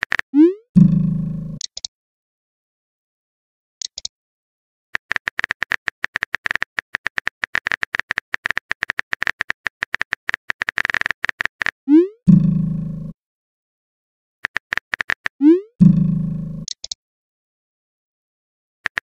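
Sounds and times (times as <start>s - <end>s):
high clicks: 1.6s - 1.9s, 3.8s - 4.1s, 5.0s - 11.8s, 14.4s - 15.4s, 16.6s - 17.0s.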